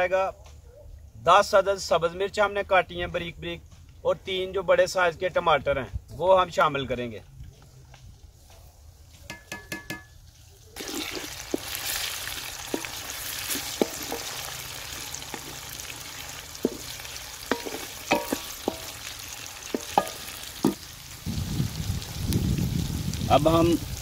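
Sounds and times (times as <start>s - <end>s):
vegetables sizzling in hot oil: 10.8s - 24.0s
wooden spoon scraping pot: 12.6s - 19.1s.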